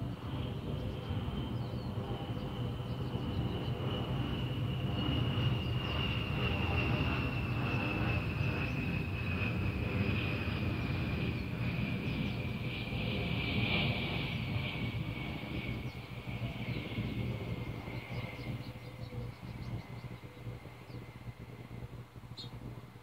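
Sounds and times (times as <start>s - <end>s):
distant engine rumble: 0.0s - 23.0s.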